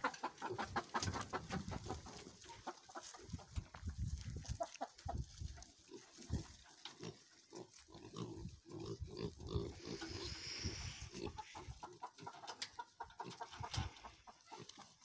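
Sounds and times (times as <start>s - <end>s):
pigs grunting: 5.8s - 12.3s.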